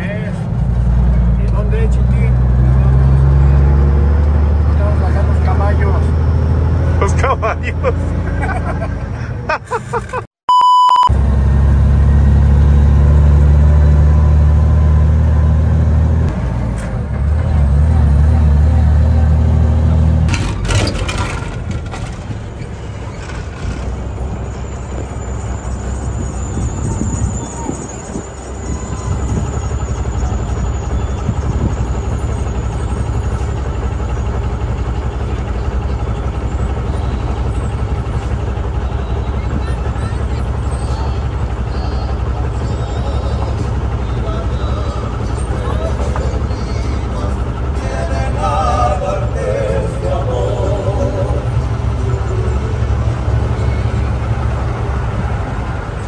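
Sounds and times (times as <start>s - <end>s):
vehicle rumble from inside cab: 0.0s - 10.2s, 10.9s - 56.0s
flat beep: 10.5s - 11.1s.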